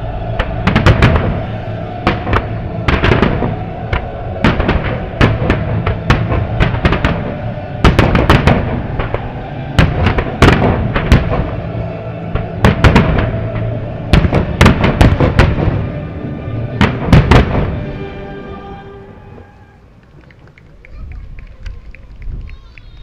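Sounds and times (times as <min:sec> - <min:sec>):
music playing: 0:00.0 - 0:19.9.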